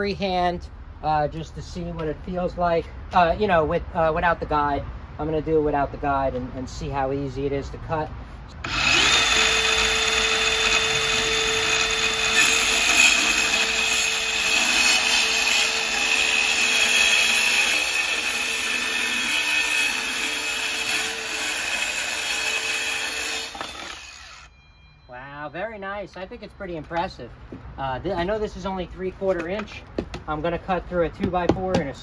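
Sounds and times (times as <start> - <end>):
circular saw cutting wood: 8.6 - 24.5.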